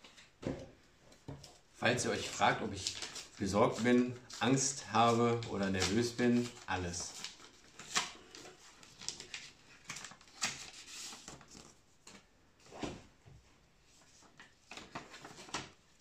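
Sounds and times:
paper rustling and scraping: 2.0 - 13.0, 13.9 - 15.8.

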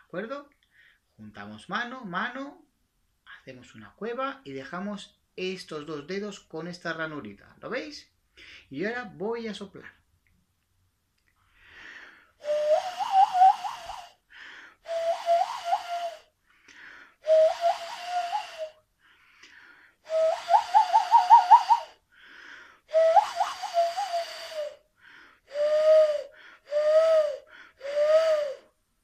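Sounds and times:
hand whistle owl hoot: 12.4 - 14.2, 14.9 - 16.3, 17.3 - 18.8, 20.1 - 22.0, 22.9 - 24.8, 25.5 - 28.7.

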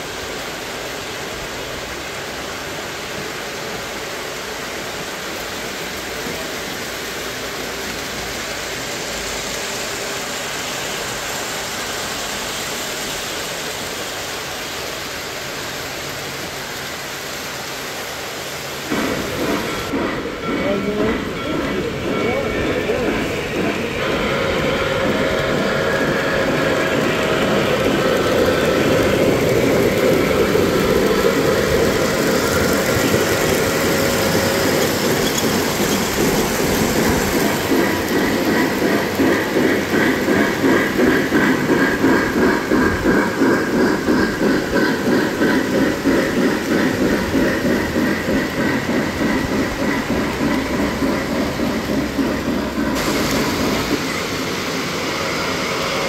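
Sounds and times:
model train running on track: 0.0 - 56.0
rhythmic pulsing: 18.9 - 55.8.

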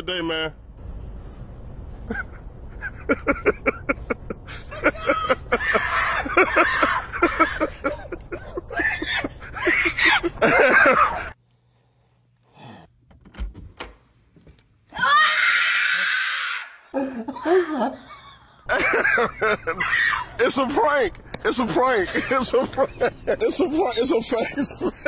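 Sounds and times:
people yelling and shrieking: 4.6 - 11.4, 15.0 - 16.9, 19.5 - 22.0.

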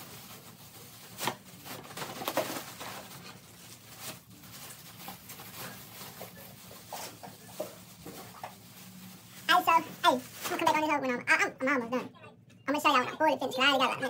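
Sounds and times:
plastic bag rustling: 0.0 - 11.2.

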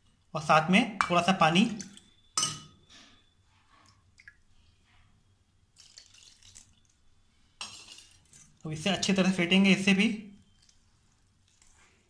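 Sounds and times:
small water splashes: 5.8 - 6.8
water pouring into steel bowl: 5.8 - 6.9.

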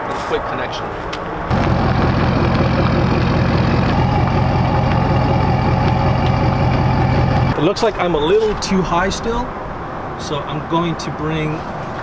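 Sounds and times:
higher steady tone: 1.5 - 7.6
truck engine running: 1.5 - 7.6.

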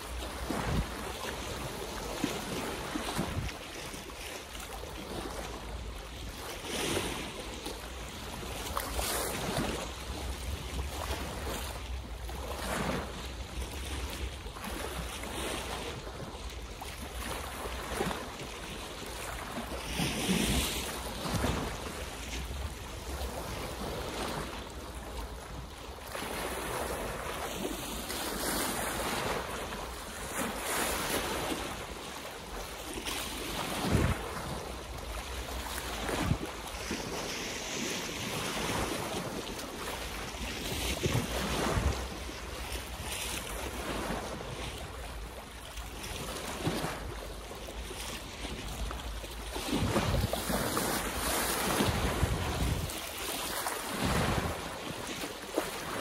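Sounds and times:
wind rumbling on microphone: 0.0 - 3.7, 33.4 - 44.9, 49.6 - 56.0
small waves splashing: 0.0 - 56.0.

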